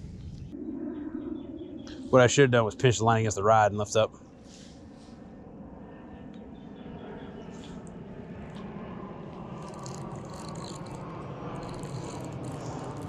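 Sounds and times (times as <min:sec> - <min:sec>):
fishing reel clicking: 0:09.6 - 0:11.0, 0:11.6 - 0:13.0.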